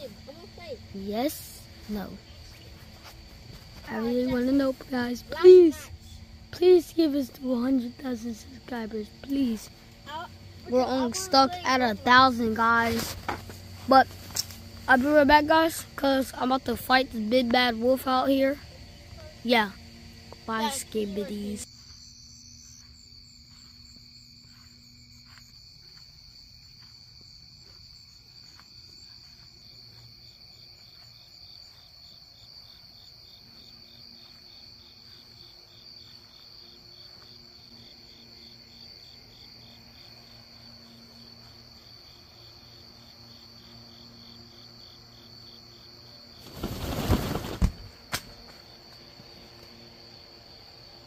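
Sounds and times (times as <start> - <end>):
insects trilling: 0.0 - 51.0
pulsed cricket chirp: 0.0 - 51.0.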